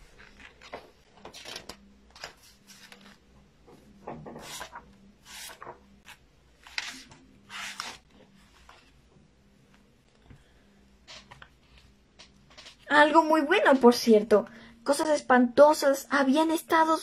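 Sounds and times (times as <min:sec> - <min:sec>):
book pages rustling: 0:00.0 - 0:09.0.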